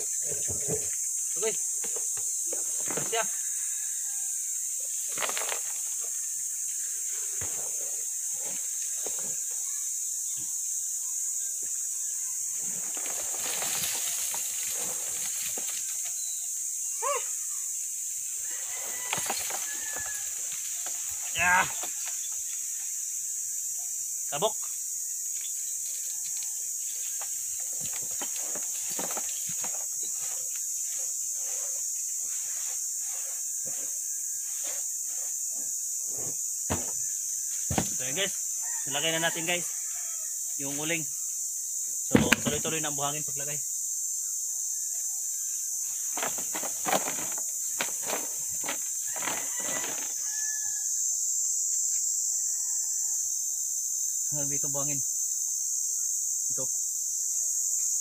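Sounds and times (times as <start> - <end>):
insect chorus: 0.0 - 58.0
knocks and scrapes of handling: 27.0 - 35.4, 46.1 - 50.2.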